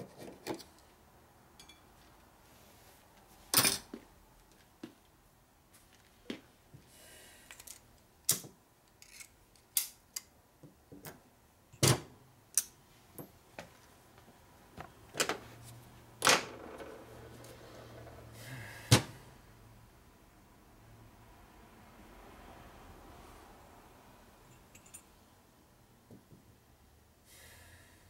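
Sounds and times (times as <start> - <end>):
metal parts clinking on workbench: 24.5 - 25.1.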